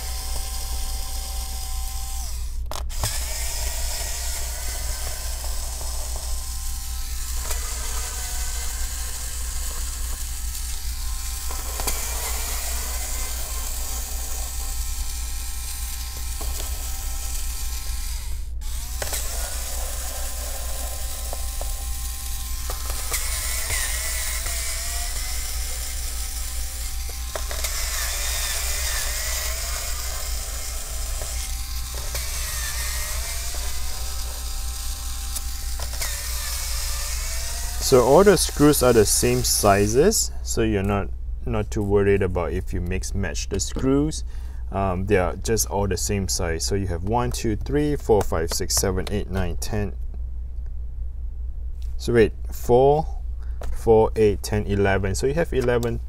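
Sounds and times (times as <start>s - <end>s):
electric screwdriver running: 0.0s - 40.0s.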